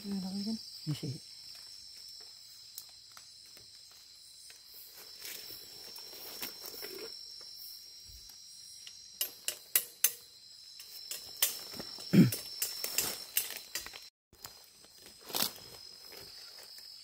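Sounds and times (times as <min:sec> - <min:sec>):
night insects chorus: 0:00.0 - 0:17.0.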